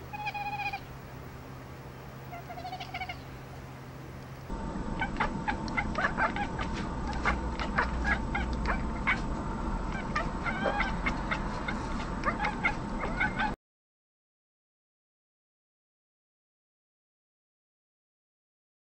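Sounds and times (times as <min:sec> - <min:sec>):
cat chattering chirps: 0:00.1 - 0:00.9, 0:02.3 - 0:03.4, 0:05.0 - 0:09.3, 0:09.9 - 0:13.6.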